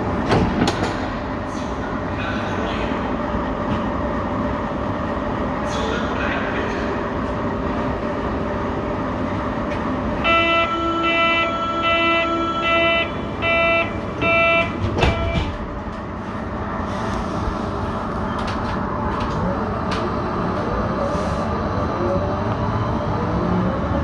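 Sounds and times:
train doors shutting thud: 0.1 - 1.2, 13.4 - 16.1
door warning beeps: 10.3 - 15.6.

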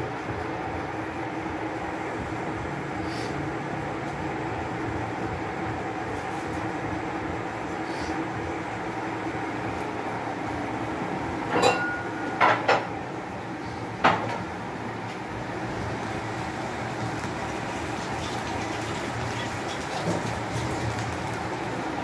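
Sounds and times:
kitchen background noise: 1.6 - 22.0
kitchenware clinking: 11.5 - 12.9.

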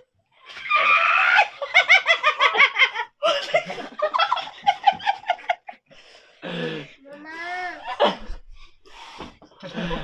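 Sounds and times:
people laughing hard: 1.2 - 5.9, 9.6 - 10.0.

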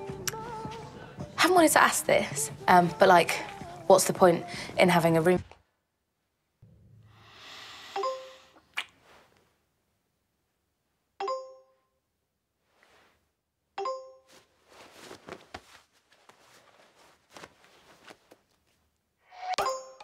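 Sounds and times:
message notification chime: 8.0 - 8.5
soft rustling: 12.6 - 13.4, 14.2 - 19.1.

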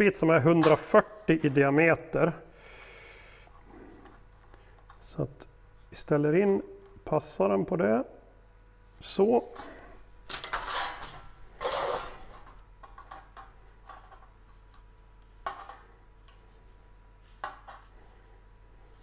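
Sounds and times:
scraping on sheet metal: 10.4 - 12.3.

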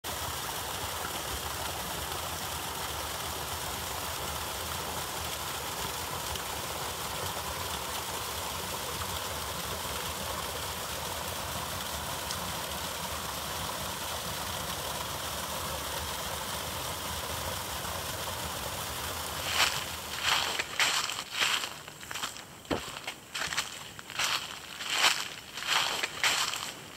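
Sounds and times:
small waterfall splashing: 0.0 - 26.9
footsteps on dry leaves: 19.4 - 26.9.

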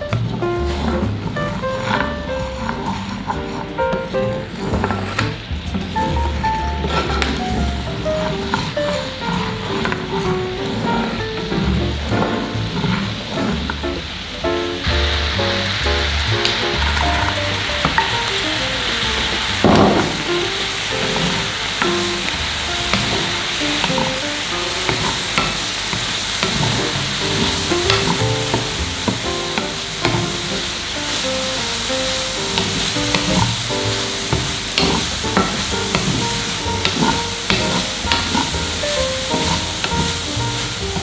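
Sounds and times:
bread frying sizzling: 0.0 - 41.0
spatula tapping and scraping pan: 24.9 - 30.4, 32.6 - 33.6, 34.3 - 41.0.

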